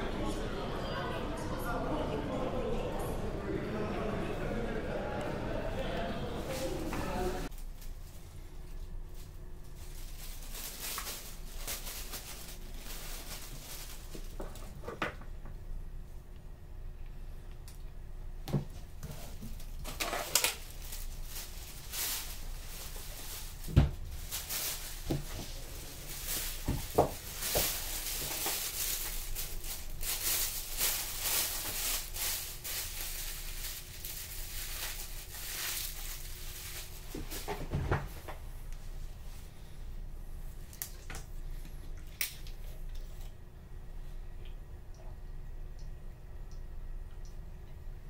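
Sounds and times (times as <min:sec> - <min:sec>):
faint steady hum: 0:00.0 - 0:48.0
rustling and crinkling: 0:06.5 - 0:15.4, 0:18.4 - 0:39.8.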